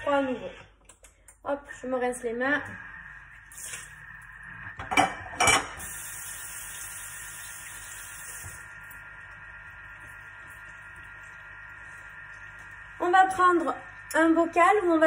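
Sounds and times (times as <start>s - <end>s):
tap running water: 2.6s - 14.2s.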